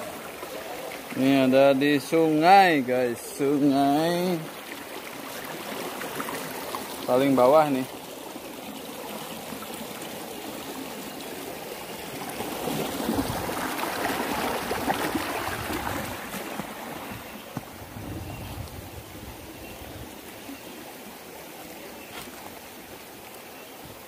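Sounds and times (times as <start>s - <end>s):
stream trickling over stones: 0.0s - 24.0s.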